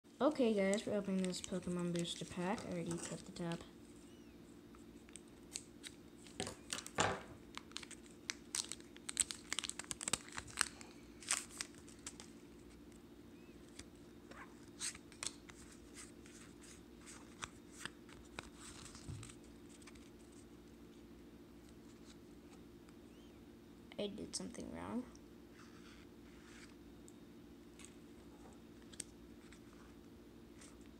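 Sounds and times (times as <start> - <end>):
foil crinkling: 0.7 - 3.7, 5.0 - 12.8.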